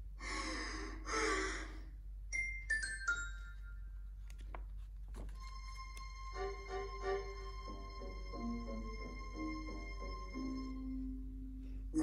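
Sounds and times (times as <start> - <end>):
paper page turning: 4.2 - 5.7.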